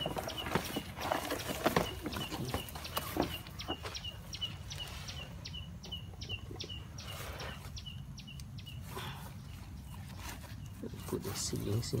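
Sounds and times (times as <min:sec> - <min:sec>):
bird chirping rapidly: 0:00.0 - 0:10.0.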